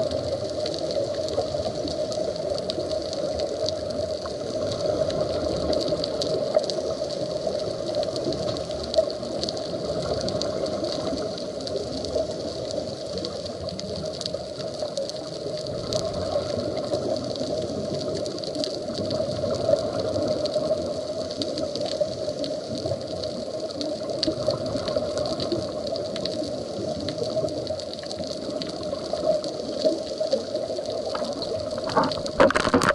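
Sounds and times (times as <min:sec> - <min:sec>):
faint clicks: 0:00.0 - 0:32.9
underwater rushing noise: 0:00.0 - 0:32.9.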